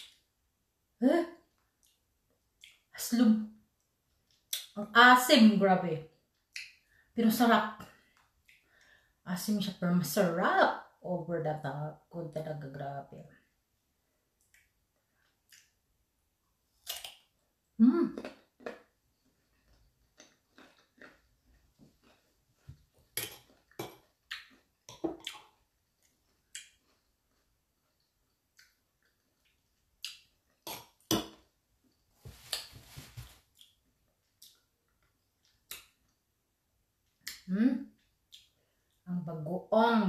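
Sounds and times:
crunchy mango chewing: 18.2 - 31.1.

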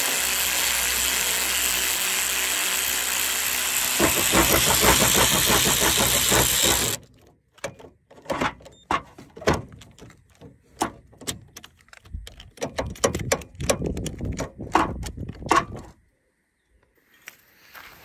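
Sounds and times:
power tool running: 0.0 - 7.0.

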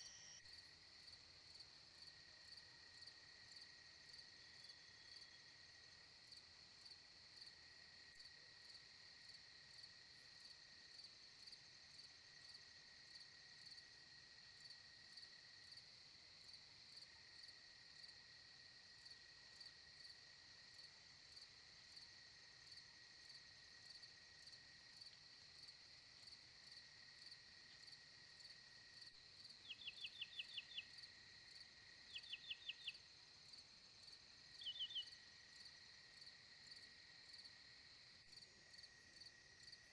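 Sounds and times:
low insect drone: 0.0 - 39.9
crickets trilling: 23.8 - 37.6.

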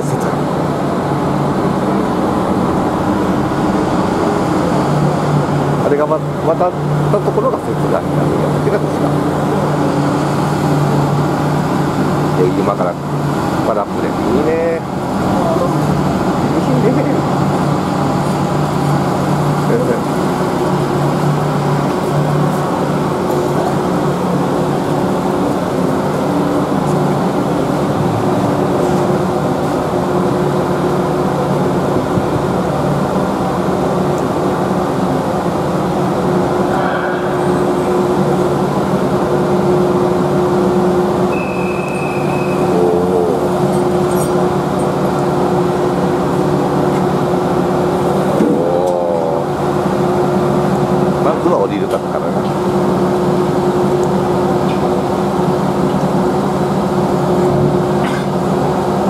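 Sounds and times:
ferry diesel engines droning: 0.0 - 59.0
short high beep: 41.3 - 42.7.

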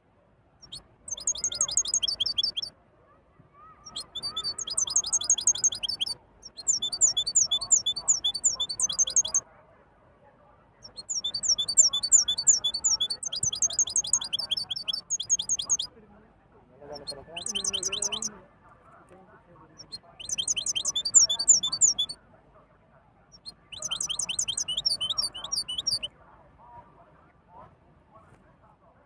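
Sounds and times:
finch twittering: 0.6 - 2.7, 3.8 - 9.4, 10.8 - 15.9, 16.9 - 18.3, 19.8 - 22.2, 23.4 - 26.1.

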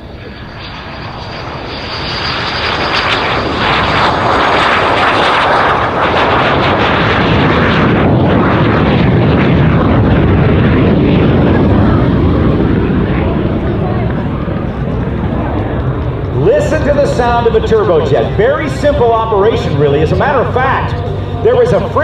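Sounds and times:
jet flying by low: 0.0 - 22.0.

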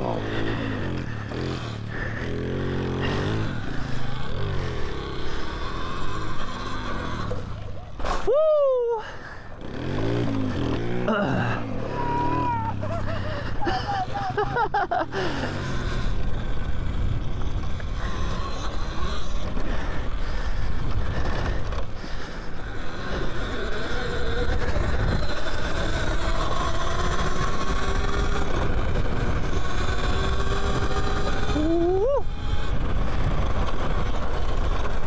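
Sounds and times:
electric motor whine: 15.2 - 35.0.

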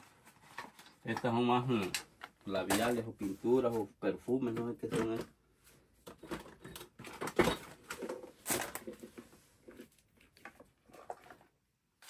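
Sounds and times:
rustling packaged items: 0.0 - 12.0.

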